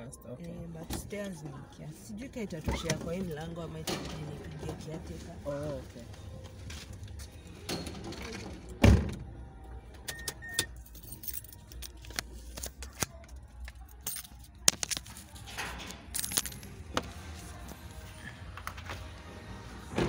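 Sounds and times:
keys jangling: 10.8s - 12.0s, 13.4s - 16.9s.

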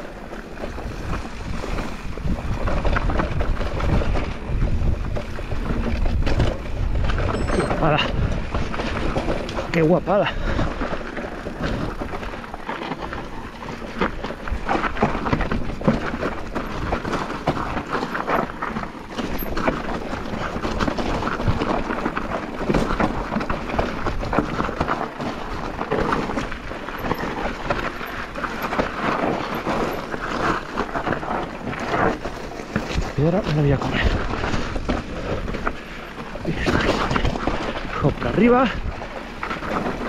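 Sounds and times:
bike chain and frame rattling: 0.0s - 40.0s
tyres crunching over stones: 0.0s - 40.0s.

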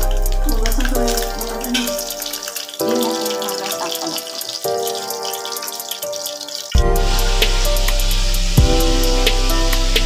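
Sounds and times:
background music with steady beat: 0.0s - 10.0s
heavy drum hit: 6.8s - 10.0s.

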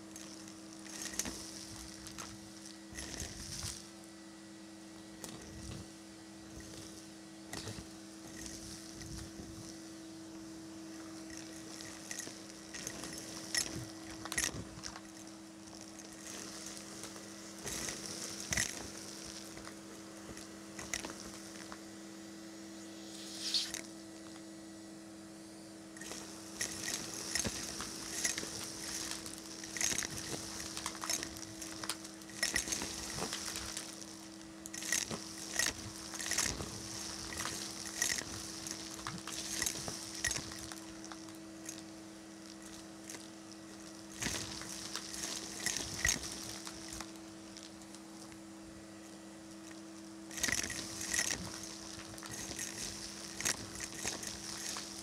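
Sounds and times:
vacuum cleaner motor hum: 0.0s - 55.0s
debris rattling up vacuum tube: 26.0s - 48.0s, 50.3s - 55.0s.

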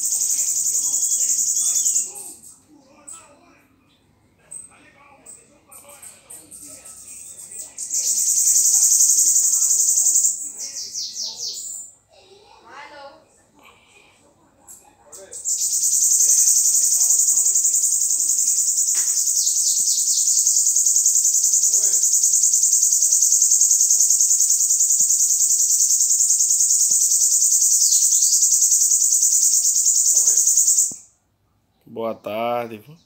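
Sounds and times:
bird singing pulsing trill: 0.0s - 2.6s, 5.3s - 11.9s, 15.2s - 31.0s.

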